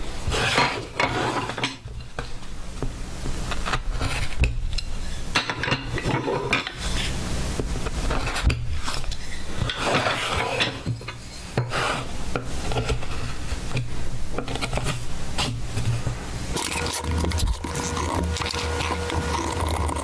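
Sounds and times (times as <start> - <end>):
chisel scraping wood: 0.3 - 1.7, 8.1 - 10.8.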